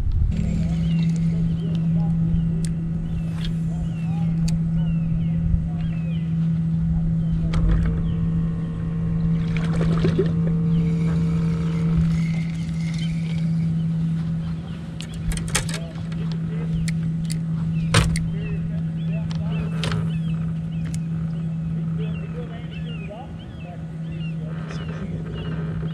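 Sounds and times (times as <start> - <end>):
electric motor humming: 0.0 - 25.9.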